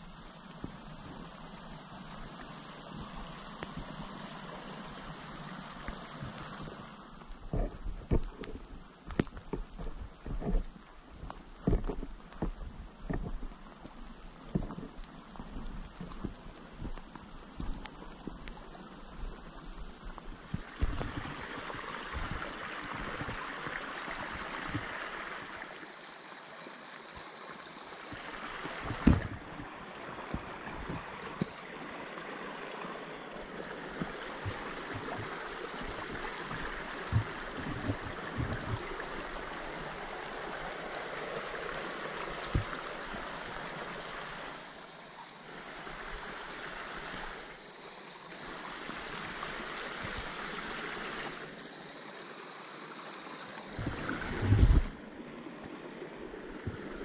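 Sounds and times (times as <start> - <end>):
creek running over rocks: 0.0 - 57.0
short thumps: 20.5 - 21.4.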